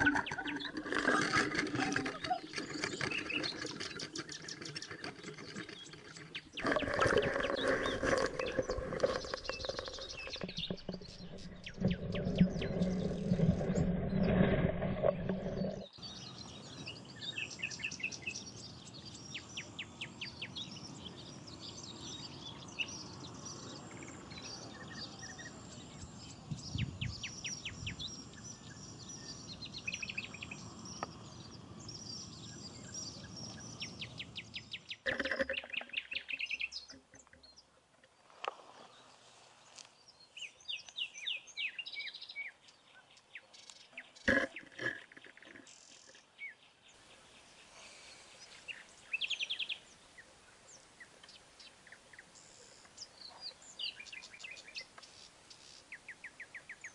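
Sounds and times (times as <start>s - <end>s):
small birds chirping: 0.0s - 14.4s, 15.0s - 56.9s.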